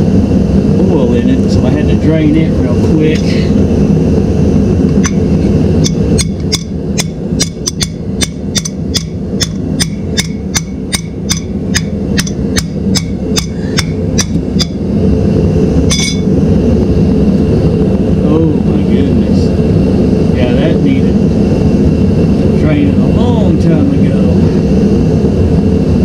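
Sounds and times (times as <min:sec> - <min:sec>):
steady low rumble: 0:00.0 - 0:26.0
hammer tapping metal cover: 0:05.8 - 0:14.8.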